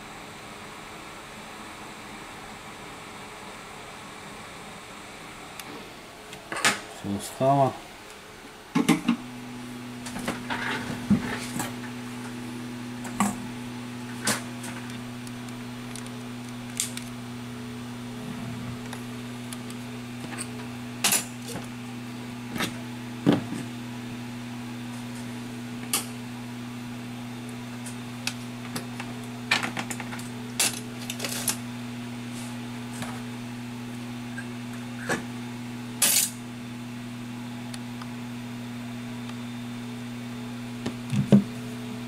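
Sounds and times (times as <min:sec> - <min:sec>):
low electrical hum: 0:00.0 - 0:42.0.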